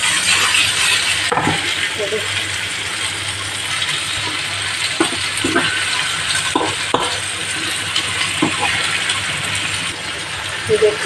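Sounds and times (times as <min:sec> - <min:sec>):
food sizzling in a frying pan: 0:00.0 - 0:11.0
metal spoon scraping a pan: 0:05.0 - 0:09.2.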